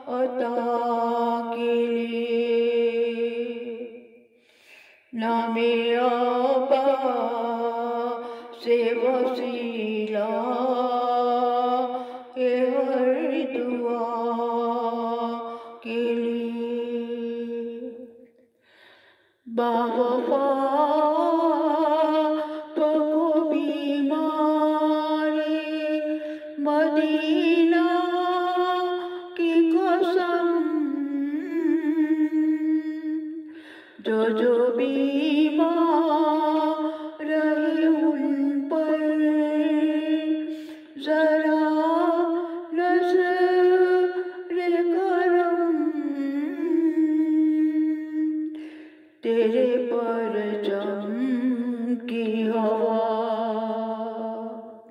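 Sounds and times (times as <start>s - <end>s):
woman chanting: 0.0s - 4.2s, 4.9s - 18.2s, 19.5s - 54.9s
breaths: 4.2s - 5.2s, 8.2s - 8.6s, 11.9s - 12.4s, 15.4s - 15.8s, 18.2s - 19.5s, 22.4s - 22.8s, 26.2s - 26.6s, 33.5s - 34.1s, 36.8s - 37.2s, 40.4s - 41.0s, 48.5s - 49.2s.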